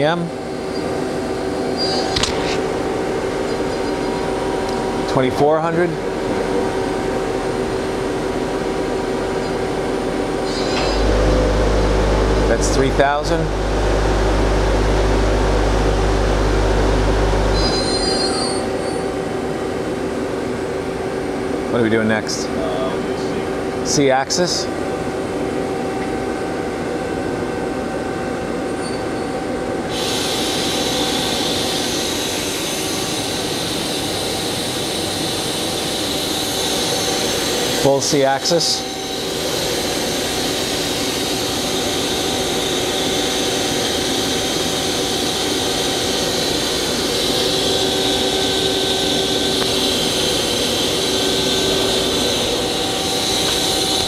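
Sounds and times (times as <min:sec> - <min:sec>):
lathe spindle whine: 0:00.4 - 0:19.4, 0:29.4 - 0:54.0
deep hum: 0:06.0 - 0:17.8
loud steady hiss: 0:29.9 - 0:54.0.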